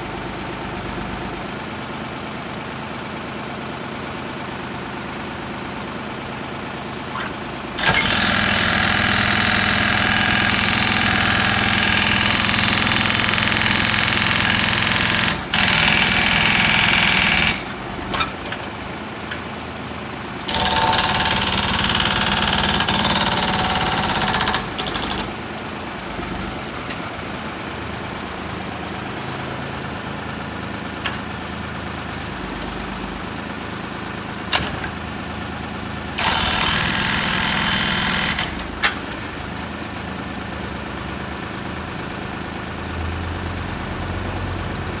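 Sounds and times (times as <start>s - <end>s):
tractor engine running: 0.0s - 37.5s
hydraulic breaker hammering concrete: 7.8s - 18.4s, 20.4s - 25.4s, 36.2s - 38.8s.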